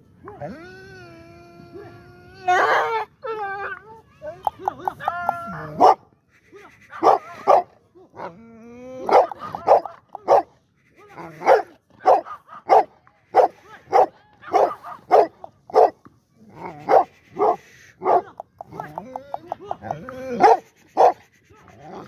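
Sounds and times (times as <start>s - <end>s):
large dog barking: 7.0s - 7.7s, 9.1s - 10.5s, 11.4s - 16.0s, 20.4s - 21.2s.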